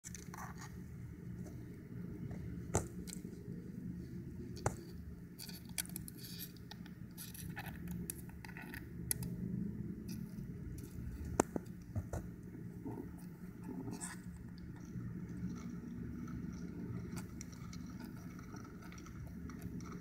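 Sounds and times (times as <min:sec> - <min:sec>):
steady low hum: 0:00.0 - 0:20.0
light scratching on shell: 0:00.1 - 0:20.0
crab shell clicking: 0:07.5 - 0:09.3.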